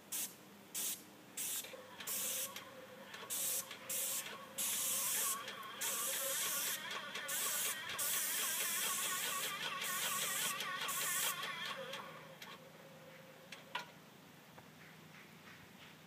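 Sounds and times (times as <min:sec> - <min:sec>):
paint spray gun hissing: 0:00.0 - 0:12.0.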